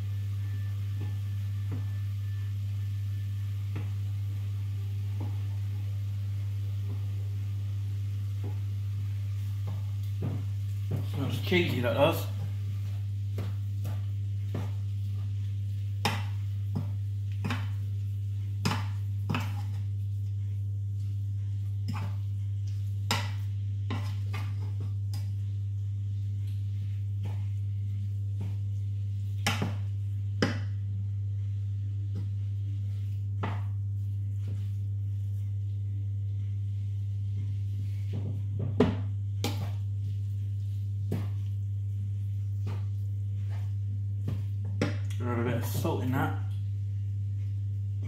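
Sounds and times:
low hum: 0:00.0 - 0:48.0
wooden spoon stirring sauce in pan: 0:06.8 - 0:25.3.

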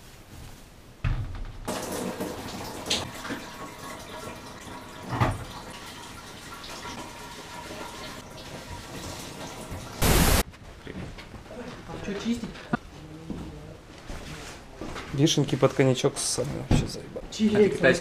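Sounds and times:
shower water spray hissing: 0:09.3 - 0:10.4
short loud burst of noise: 0:10.0 - 0:10.4.

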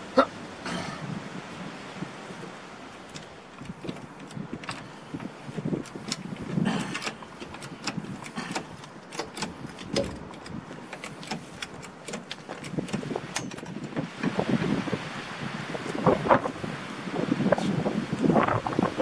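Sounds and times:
trolley jack metallic clicks: 0:03.1 - 0:14.4.

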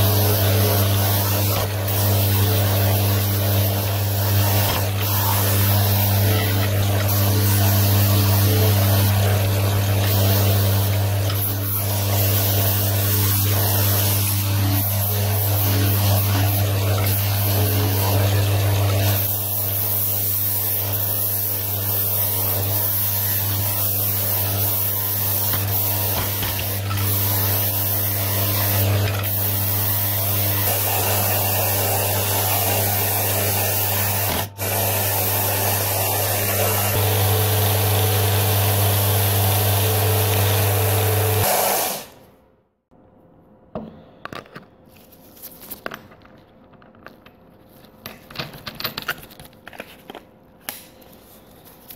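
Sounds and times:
disc sander motor hum: 0:00.0 - 0:20.0, 0:20.8 - 0:41.6.

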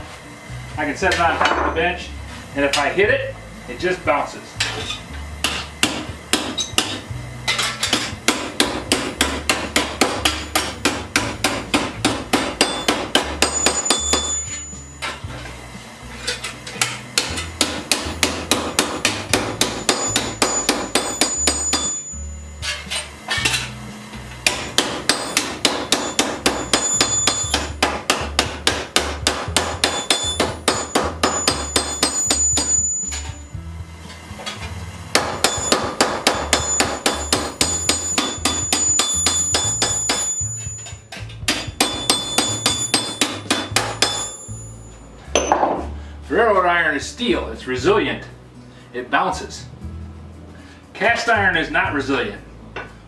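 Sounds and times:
hammer striking steel: 0:04.6 - 0:15.3, 0:16.3 - 0:23.8, 0:24.4 - 0:33.4, 0:34.4 - 0:45.9.

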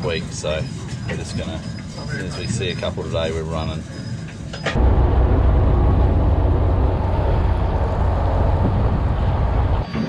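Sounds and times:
boat diesel engine rumbling: 0:04.8 - 0:10.0
water rushing along hull: 0:04.8 - 0:10.0.

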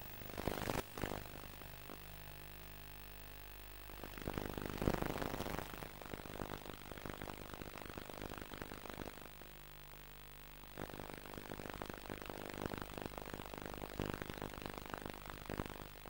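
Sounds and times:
rough crackling noise: 0:00.0 - 0:01.4, 0:04.0 - 0:10.1
low electrical hum: 0:00.0 - 0:16.0.

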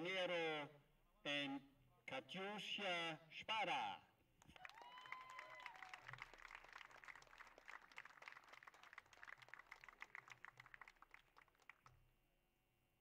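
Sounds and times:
small crowd applause: 0:04.4 - 0:12.0.

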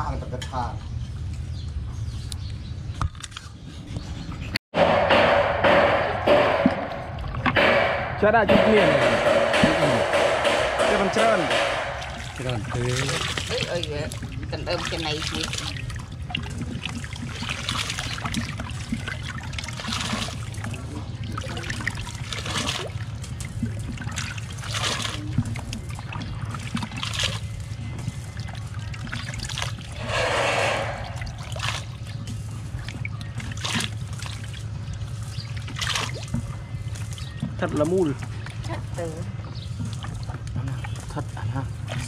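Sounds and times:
steady low hum: 0:03.9 - 0:42.0
water splashing and trickling: 0:06.2 - 0:42.0
water pouring rush: 0:09.0 - 0:32.8.

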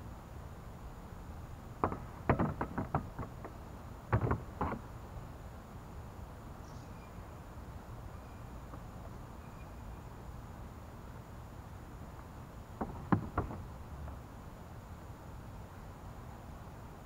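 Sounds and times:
boat seat knocking on plastic hull: 0:01.8 - 0:04.8, 0:12.8 - 0:13.6.

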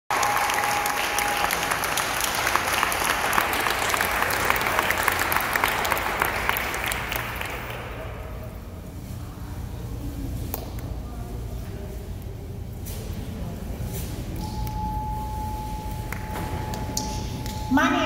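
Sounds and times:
crowd applauding: 0:00.1 - 0:08.3.

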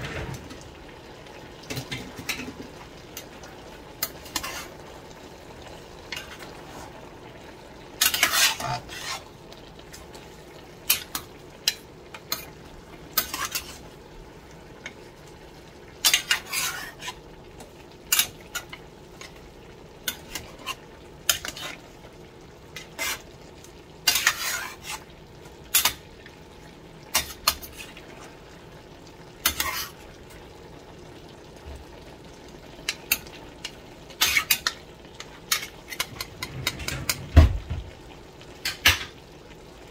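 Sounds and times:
vegetables sizzling: 0:00.0 - 0:39.9
spatula scraping metal pan: 0:04.0 - 0:04.7, 0:08.0 - 0:09.3, 0:13.2 - 0:13.8, 0:16.0 - 0:17.2, 0:20.1 - 0:21.8, 0:22.8 - 0:23.2, 0:24.0 - 0:25.1, 0:29.4 - 0:30.0, 0:35.5 - 0:37.3.

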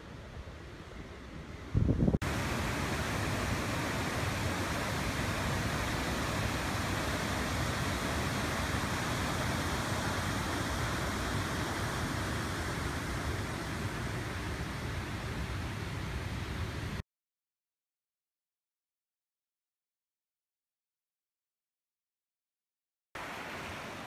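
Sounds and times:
river water rushing: 0:02.2 - 0:16.7, 0:23.2 - 0:24.0.

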